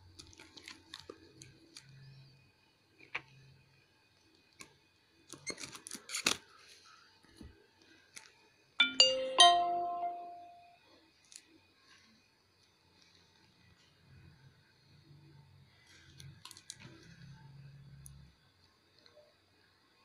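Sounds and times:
two-note electronic chime: 8.8s - 10.7s.

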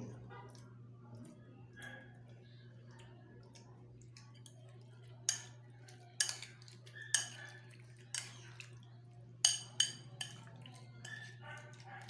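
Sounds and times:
metal spoon clinking on bowl: 5.3s - 5.6s, 6.2s - 8.4s, 9.4s - 11.4s.

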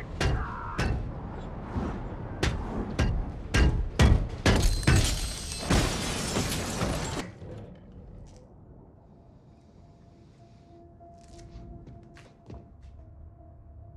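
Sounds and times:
glass cracking and shattering: 4.5s - 7.2s.

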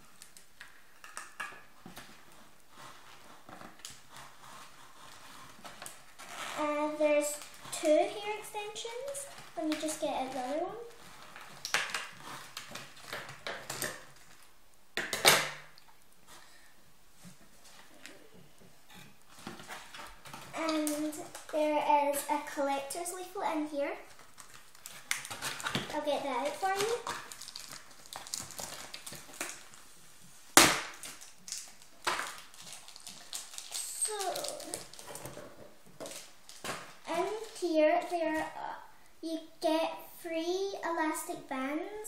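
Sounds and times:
plastic packaging crinkling: 0.0s - 14.6s, 19.1s - 22.9s, 24.0s - 29.9s, 30.5s - 38.6s.

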